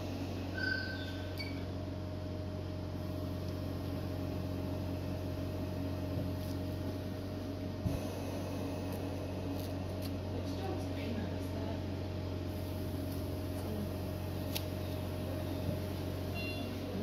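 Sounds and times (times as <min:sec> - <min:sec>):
machine hum: 0:00.0 - 0:17.0
faint steady tone: 0:16.2 - 0:17.0.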